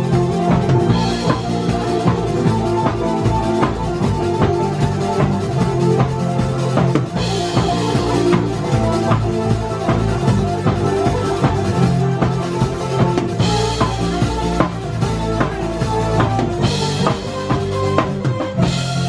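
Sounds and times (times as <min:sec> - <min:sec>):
acoustic rock band playing: 0:00.0 - 0:19.0
drum kit beat: 0:00.0 - 0:19.0.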